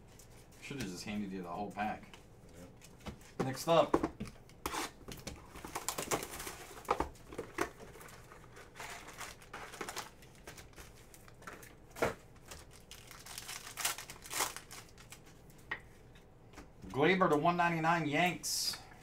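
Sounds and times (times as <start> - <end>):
wrapper tearing and crinkling: 5.5 - 6.9, 7.9 - 11.4, 12.4 - 15.4.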